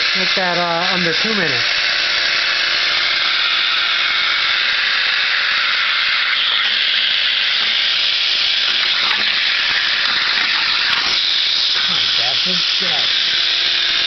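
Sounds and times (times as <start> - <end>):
plasma torch hissing: 0.0 - 14.0.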